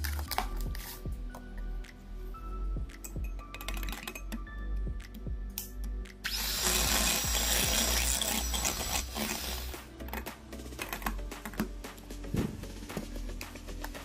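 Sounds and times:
background music: 0:00.0 - 0:14.0
electric hand mixer whipping cream: 0:06.3 - 0:09.7.

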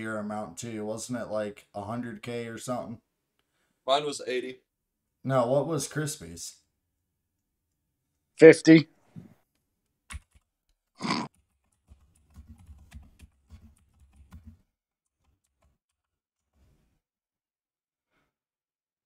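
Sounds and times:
computer keyboard typing: 0:10.1 - 0:10.5, 0:11.3 - 0:16.1.

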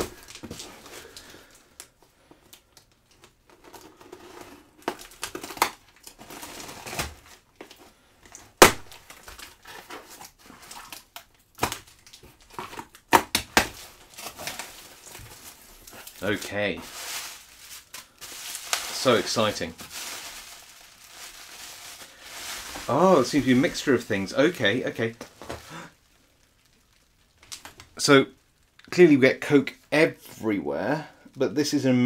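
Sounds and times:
packing tape ripping: 0:02.8 - 0:07.7, 0:08.3 - 0:24.0.

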